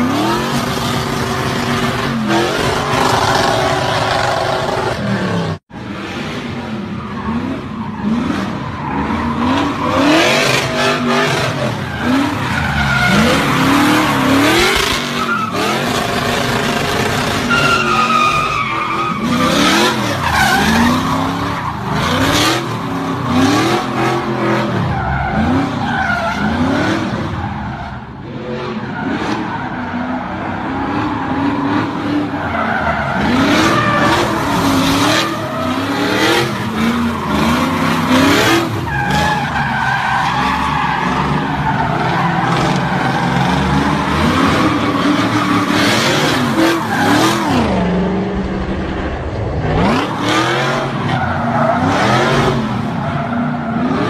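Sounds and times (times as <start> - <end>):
car engine revving: 0.0 - 27.6, 28.4 - 54.0
tyres screeching: 7.7 - 26.7.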